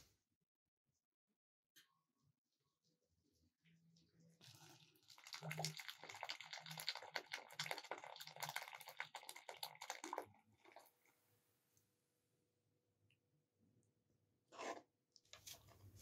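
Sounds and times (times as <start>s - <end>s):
hot water pouring into metal bowl: 4.4s - 11.0s.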